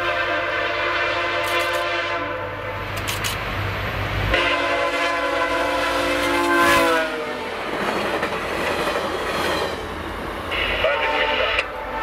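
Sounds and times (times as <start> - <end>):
train horn blast: 0.0 - 2.9, 4.3 - 7.6, 10.5 - 12.0.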